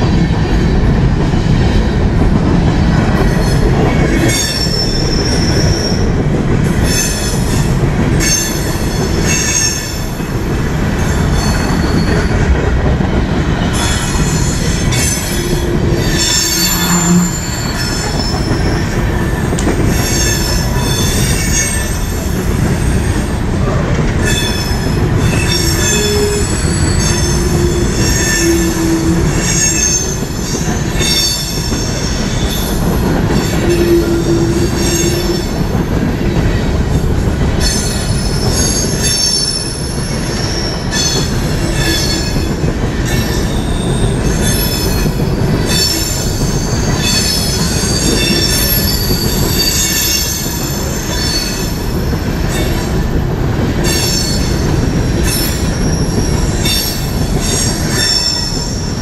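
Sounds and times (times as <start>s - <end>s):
train wheels rumbling on rail: 0.0s - 59.0s
high-pitched wheel squeal: 13.8s - 22.2s, 24.2s - 32.7s, 33.4s - 35.6s.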